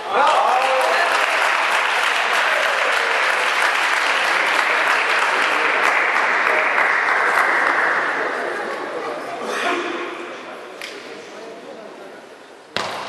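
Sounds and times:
spectators applauding: 0.0 - 8.7.

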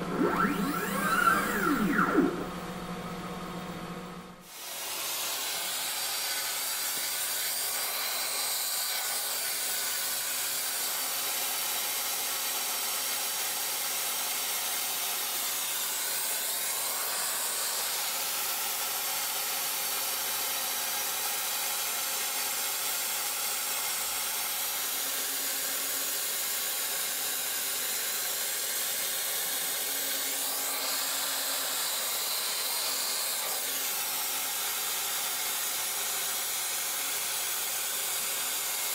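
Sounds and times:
router spindle whine: 0.0 - 4.4.

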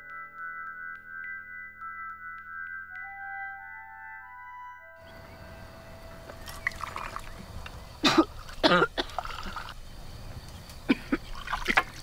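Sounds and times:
drink pouring from metal jug: 6.3 - 9.8, 11.4 - 12.0.

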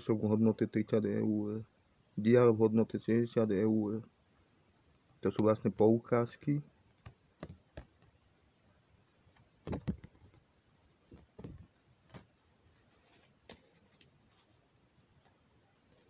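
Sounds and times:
paper cards and envelope handling: 12.2 - 14.6.

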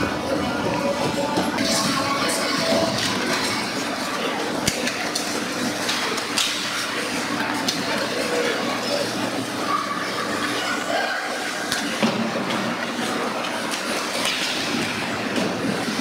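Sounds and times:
hockey stick or puck clacks: 13.7 - 14.6.

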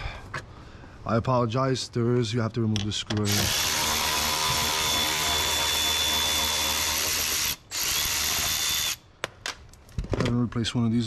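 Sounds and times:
power drill whining: 3.2 - 9.0.

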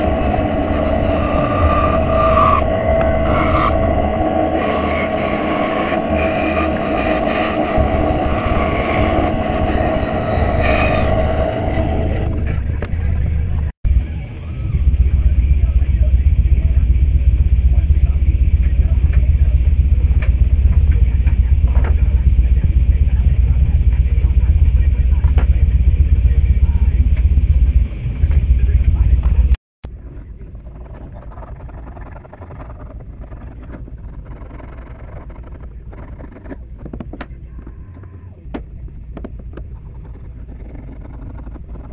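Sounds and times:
band saw whining and cutting wood: 0.0 - 13.3
steady low hum: 0.0 - 41.9.

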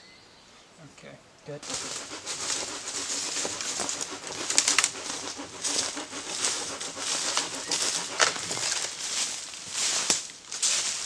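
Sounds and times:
branches rustling and cracking: 1.6 - 11.0.

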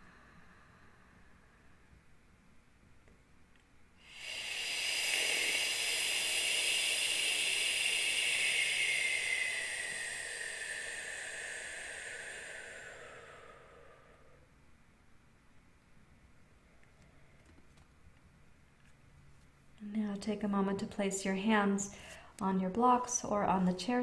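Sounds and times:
woman's long shh exhale: 0.0 - 1.9, 4.0 - 14.6.

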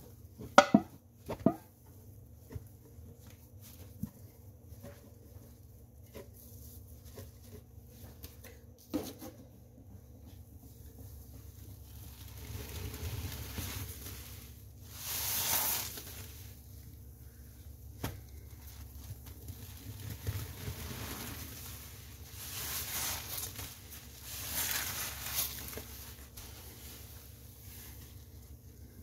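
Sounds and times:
sponge squelching: 11.0 - 29.0.

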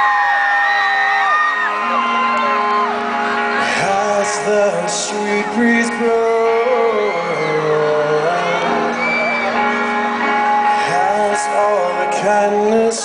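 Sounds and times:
crowd shouting and whooping: 0.0 - 11.8
live band playing rock: 0.7 - 13.0
man singing: 3.6 - 9.3, 10.6 - 13.0.

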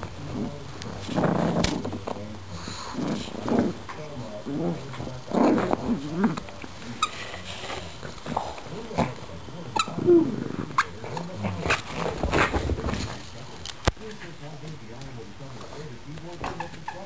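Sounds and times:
dogs growling: 0.0 - 13.4.

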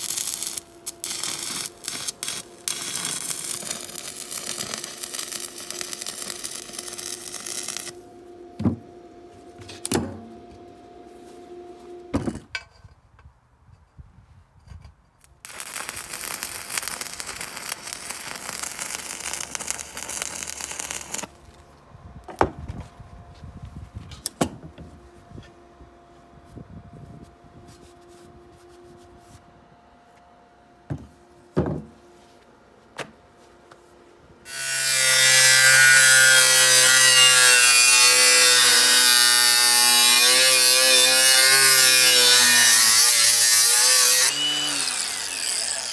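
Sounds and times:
angle grinder cutting steel: 0.0 - 8.0, 15.5 - 21.3, 34.5 - 45.9
electric arc welding crackling: 0.0 - 8.0, 15.4 - 21.3, 34.5 - 45.9.

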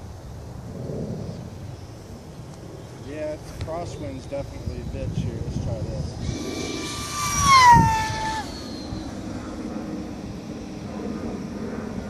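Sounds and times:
model plane motor whining: 6.2 - 9.2.

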